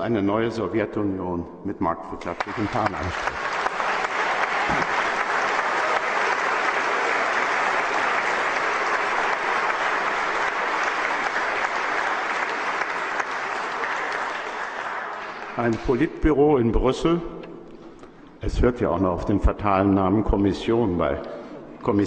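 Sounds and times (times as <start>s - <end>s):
audience applause: 2.3s - 16.1s.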